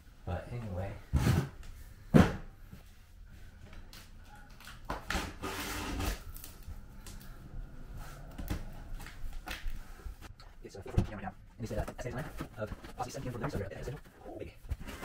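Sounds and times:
cardboard scraping and rustling: 0:12.0 - 0:15.0.

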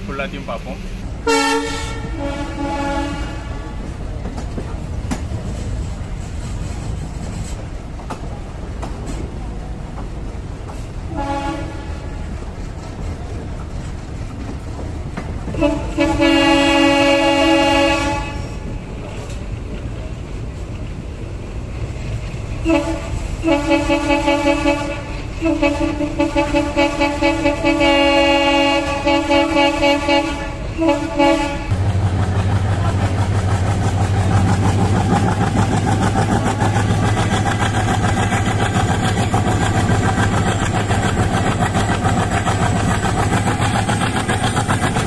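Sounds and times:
train running noise: 0:00.0 - 0:45.0
locomotive horn blasts: 0:00.5 - 0:03.9, 0:11.1 - 0:12.2, 0:15.5 - 0:18.6, 0:22.6 - 0:31.8.

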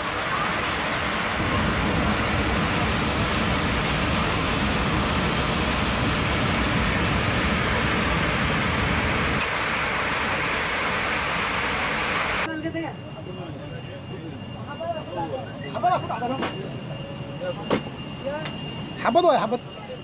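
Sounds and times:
rushing roar in airliner cabin: 0:00.0 - 0:12.5.

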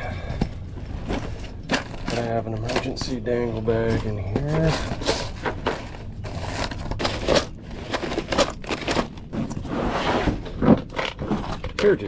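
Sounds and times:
plastic bag crinkling: 0:01.2 - 0:09.7.

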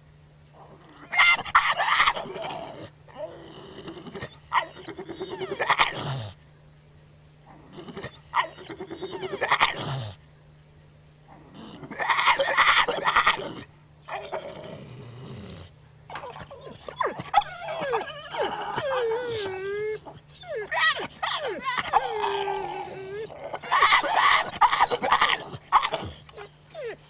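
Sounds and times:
dog whining: 0:07.8 - 0:09.8, 0:16.1 - 0:27.0.

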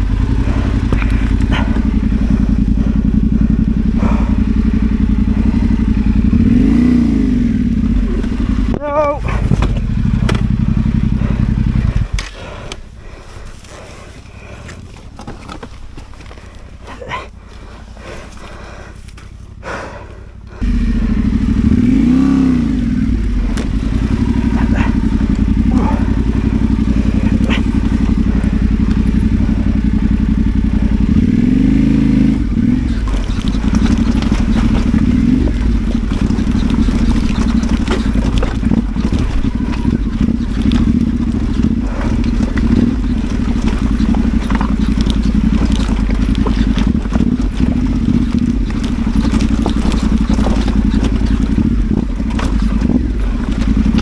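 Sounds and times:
knocks and rattles from bike: 0:00.0 - 0:54.0
motorcycle engine revving: 0:00.0 - 0:54.0.

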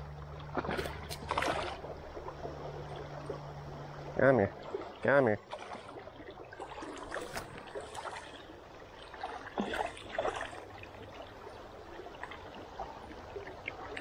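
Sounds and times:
river current gurgling: 0:00.0 - 0:14.0
water splashes: 0:00.0 - 0:14.0.

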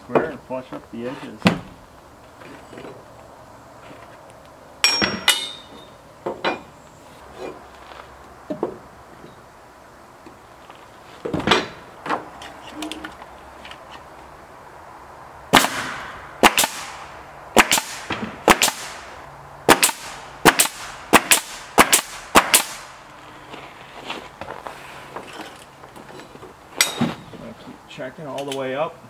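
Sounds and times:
nail gun shots: 0:15.5 - 0:19.1, 0:19.7 - 0:22.9.

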